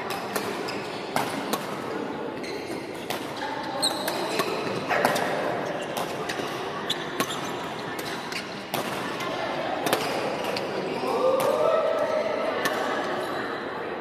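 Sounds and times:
murmur of voices: 0.0s - 14.0s
racket hitting shuttlecock: 0.1s - 2.1s, 2.8s - 6.6s, 7.2s - 9.2s
shoe squeaks on wooden court: 0.6s - 1.3s, 2.4s - 3.0s, 3.7s - 8.6s.

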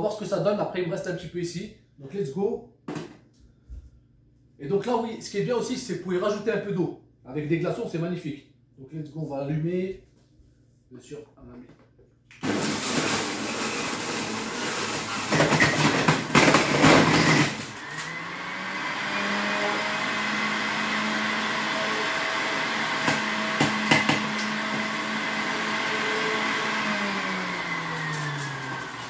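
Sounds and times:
electric juicer motor running: 12.4s - 29.0s.

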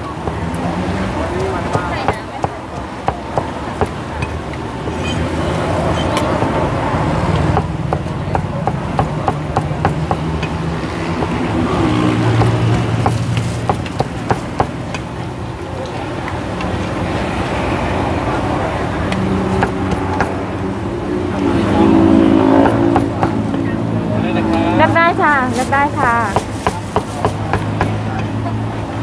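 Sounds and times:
cleaver chopping on wooden block: 0.2s - 4.4s, 7.4s - 15.1s.

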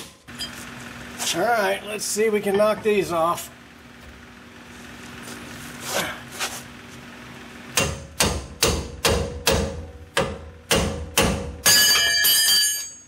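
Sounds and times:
hammer striking metal: 7.8s - 13.0s
ringing metallic clanging: 11.6s - 13.0s.

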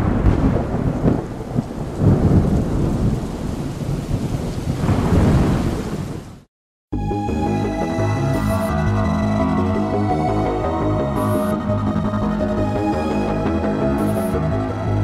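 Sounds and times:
steady rain: 0.0s - 6.5s
thunder rumbling: 0.0s - 6.5s.

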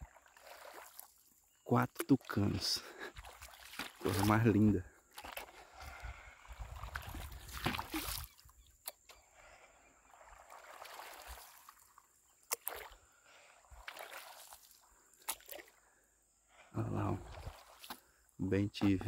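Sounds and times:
paddle splashing in water: 0.0s - 15.8s, 16.5s - 19.0s.

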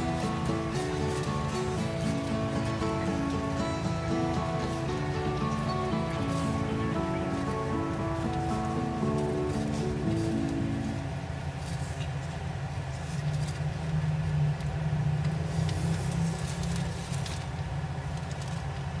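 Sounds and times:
mealworms rustling: 0.0s - 11.0s
background music: 0.0s - 11.4s.

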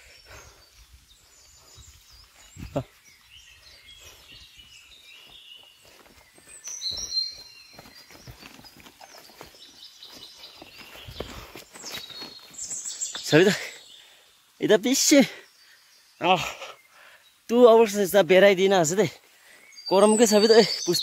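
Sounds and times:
footsteps on a trail: 0.0s - 14.1s
rustling through undergrowth: 0.0s - 14.3s
high bird calls: 0.0s - 17.5s, 18.9s - 21.0s
birds chirping: 0.0s - 21.0s.

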